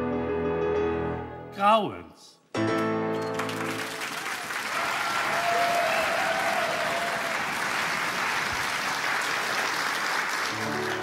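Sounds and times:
piano playing: 0.0s - 1.8s, 2.5s - 4.1s, 10.4s - 11.0s
audience applauding: 3.2s - 11.0s.

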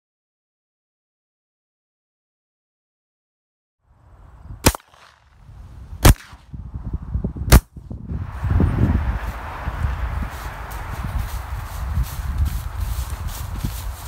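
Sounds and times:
gunshots: 4.6s - 5.2s, 6.0s - 6.4s.

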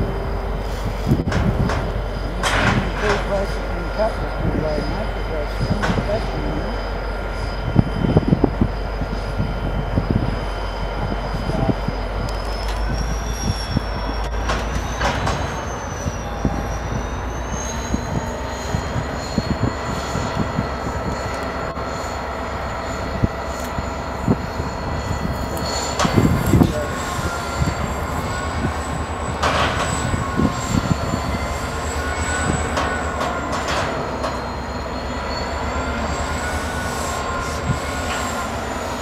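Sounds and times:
diesel locomotive running: 0.0s - 39.0s
thin high whining tones: 0.0s - 39.0s
wagons clunking and knocking: 1.0s - 3.6s.

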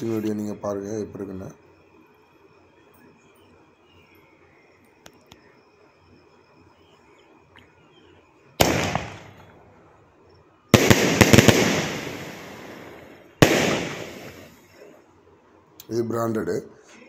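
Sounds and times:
firework loud bang: 8.6s - 9.5s, 10.8s - 14.6s
firework rapid cracks: 8.6s - 9.6s, 10.7s - 14.7s.

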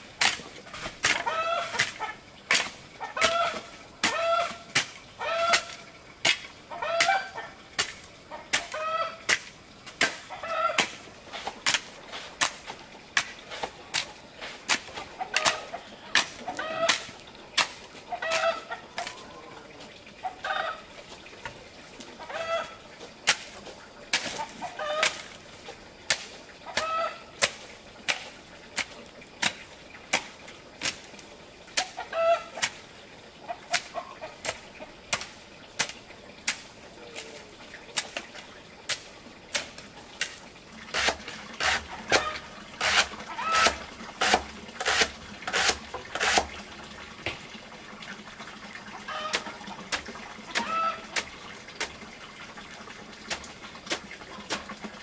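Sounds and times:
chickens clucking: 1.1s - 2.2s, 3.0s - 5.9s, 6.7s - 7.6s, 8.3s - 9.3s, 10.2s - 10.9s, 14.8s - 20.9s, 22.0s - 22.8s, 23.6s - 25.3s, 26.6s - 27.3s, 31.8s - 32.8s, 33.4s - 35.3s, 41.0s - 46.4s, 48.8s - 51.3s.

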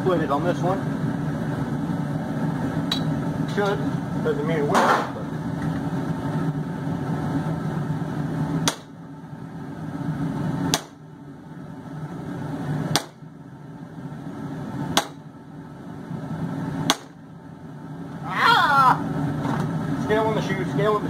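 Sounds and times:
hammer striking hot steel: 2.9s - 3.8s, 8.6s - 9.0s, 10.7s - 11.1s, 12.9s - 13.2s, 14.9s - 15.3s, 16.8s - 17.2s
forge roaring: 17.7s - 21.0s.

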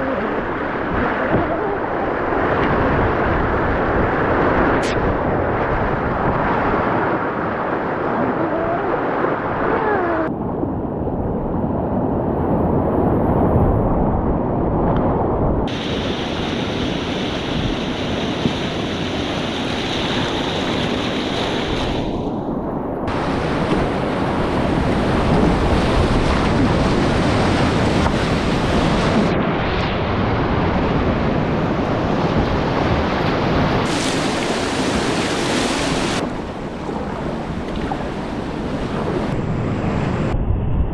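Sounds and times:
whitewater rushing over rocks: 15.7s - 22.1s, 31.7s - 37.2s.

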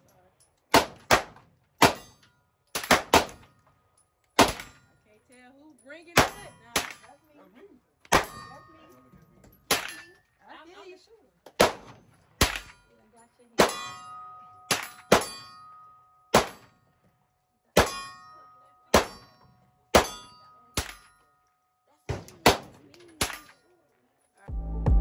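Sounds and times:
gunshots: 0.7s - 2.2s, 2.8s - 3.5s, 4.4s - 4.8s, 6.2s - 7.0s, 11.5s - 12.8s, 16.3s - 16.7s, 18.9s - 19.3s, 22.1s - 23.5s
steel target ringing clang: 13.6s - 16.8s, 17.8s - 21.2s.

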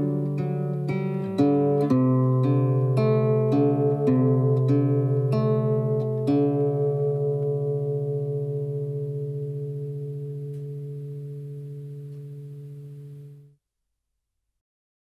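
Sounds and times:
guitar chord ringing: 0.0s - 13.6s.

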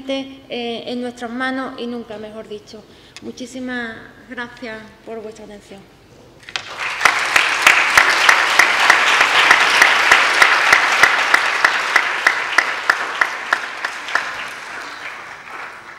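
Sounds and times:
audience applauding: 6.4s - 15.9s
sharp individual claps: 6.4s - 15.9s.

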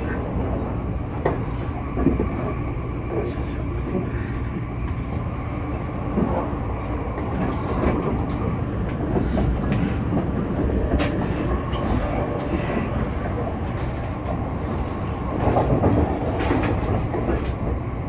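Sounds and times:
train wheels rumbling on rail: 0.0s - 18.0s
wheels clicking over rail joints: 7.1s - 17.8s.

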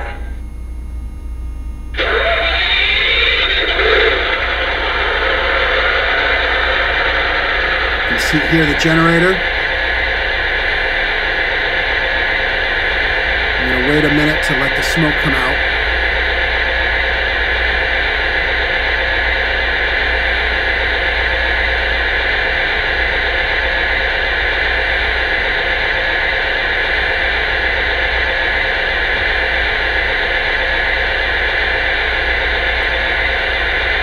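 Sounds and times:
toy diesel generator sound effect: 8.1s - 9.5s, 13.6s - 15.6s.

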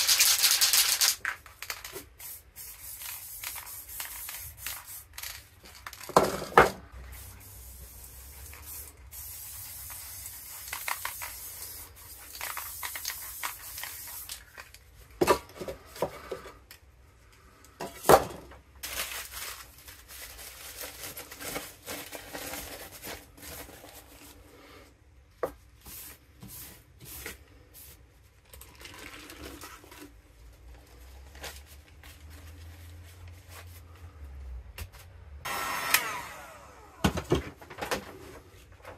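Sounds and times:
spray paint cans hissing: 0.0s - 6.1s, 7.0s - 14.8s, 25.9s - 28.0s
paper crinkling and tearing: 18.8s - 24.4s.

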